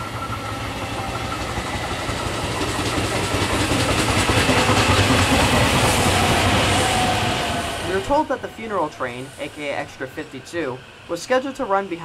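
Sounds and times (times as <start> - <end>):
electric train hum: 0.0 - 12.0
wheels clattering on rails: 0.2 - 7.1.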